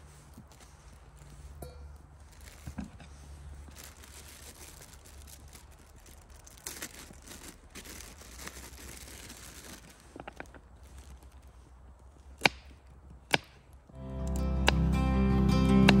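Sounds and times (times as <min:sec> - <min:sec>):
plastic bag crinkling: 0:00.5 - 0:12.3.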